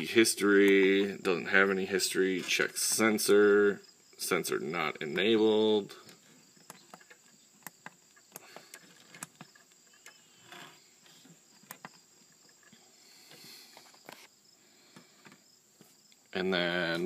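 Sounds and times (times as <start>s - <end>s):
faint irregular clicks: 6.0s - 14.3s.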